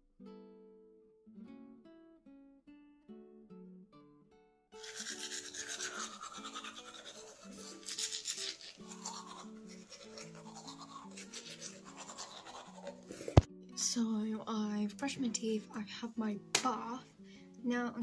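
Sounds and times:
acoustic guitar music: 0.0 - 18.0
toothbrush scrubbing teeth: 4.8 - 13.5.

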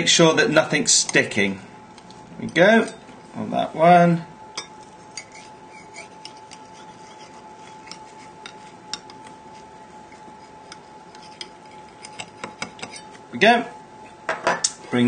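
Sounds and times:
faint steady hum: 0.0 - 15.0
knife scraping ceramic ramekin: 4.6 - 13.2.

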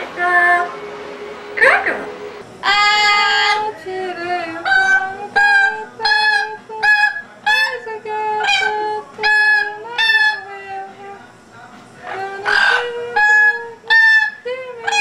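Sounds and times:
parrot calling: 1.6 - 3.7, 4.6 - 10.9, 12.0 - 15.0.

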